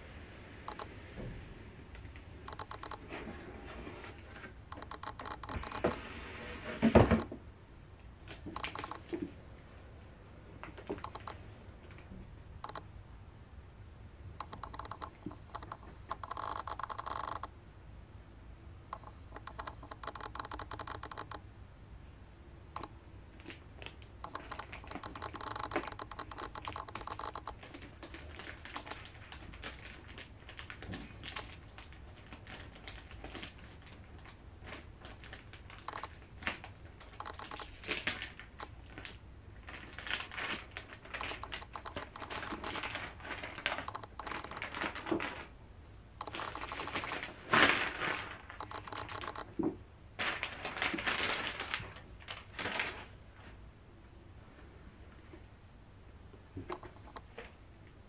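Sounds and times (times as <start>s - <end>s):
plastic packaging crinkling: 8.3s - 9.3s, 23.3s - 45.5s, 46.2s - 49.6s, 50.2s - 53.2s.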